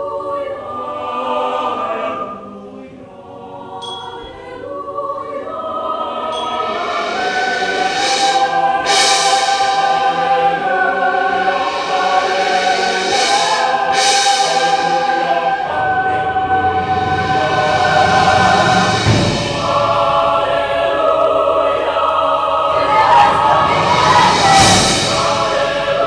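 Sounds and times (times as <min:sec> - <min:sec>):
mixed choir singing: 0:00.0 - 0:26.0
bright hissing accents: 0:06.1 - 0:26.0.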